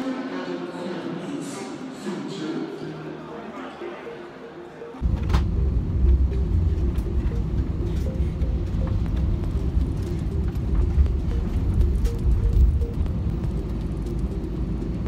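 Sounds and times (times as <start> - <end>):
airliner cabin rumble: 5.0 - 15.0.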